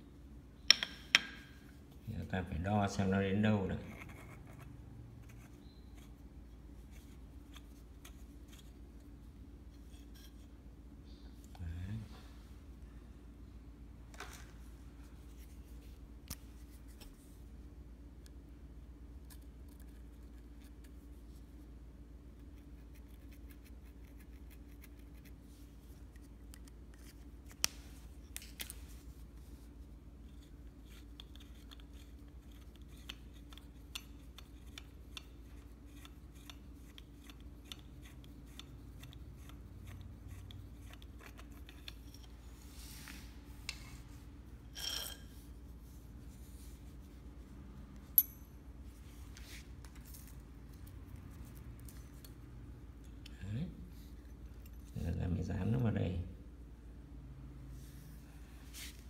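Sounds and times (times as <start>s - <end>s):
steady low hum: 0.0s - 59.0s
light clicks and taps of hand work: 0.7s - 1.6s.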